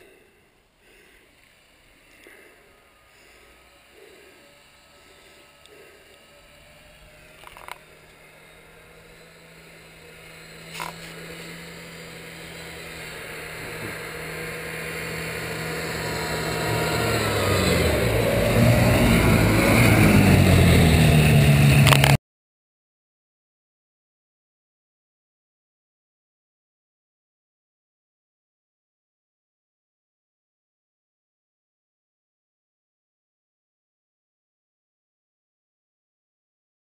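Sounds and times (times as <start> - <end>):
snowmobile engine running: 0.0 - 22.2.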